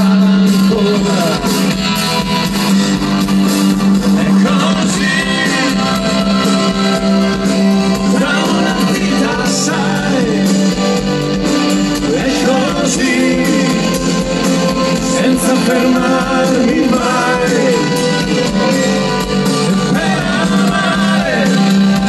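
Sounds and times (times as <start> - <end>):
man singing: 0.0 - 1.8, 4.0 - 7.0, 7.8 - 11.1, 11.9 - 22.0
live rock band playing: 0.0 - 22.0.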